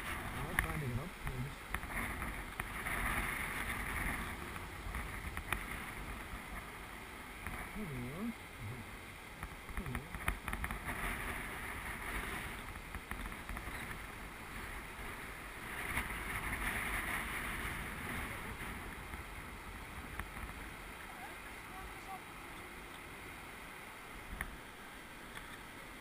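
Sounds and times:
wind buffeting microphone: 0.0s - 8.9s, 9.5s - 21.0s
water rushing over a weir: 0.0s - 26.0s.

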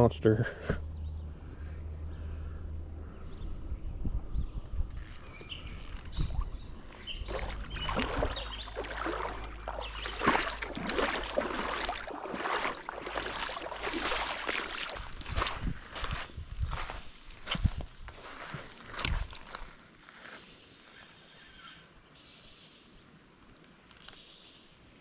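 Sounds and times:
footsteps wading through water: 5.1s - 19.9s.

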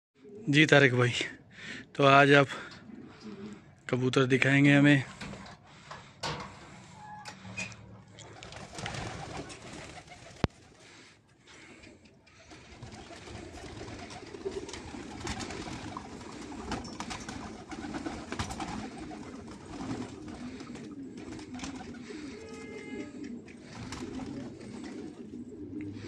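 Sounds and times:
pigeons cooing: 0.2s - 1.8s, 2.5s - 3.8s, 5.1s - 26.0s
wing claps of pigeons taking off: 8.2s - 10.7s, 12.3s - 22.4s, 23.2s - 25.2s.

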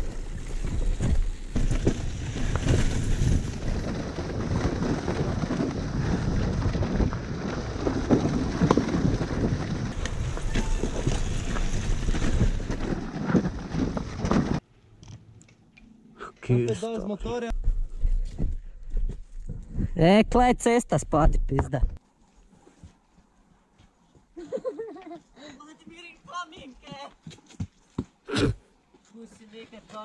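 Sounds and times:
dirt bike engine running: 0.0s - 14.6s
wind buffeting microphone: 0.0s - 14.6s.

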